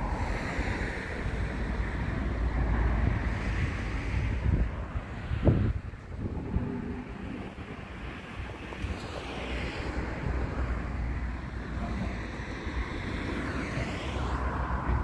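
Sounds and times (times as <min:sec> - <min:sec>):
wind rumbling on microphone: 0:00.0 - 0:15.0
vehicle passing: 0:06.0 - 0:15.0.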